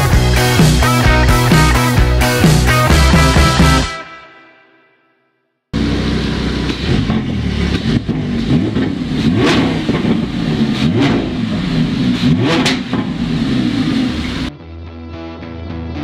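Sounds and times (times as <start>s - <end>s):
exhaust crackles: 5.8s - 14.5s
sports car engine revving: 5.8s - 14.5s.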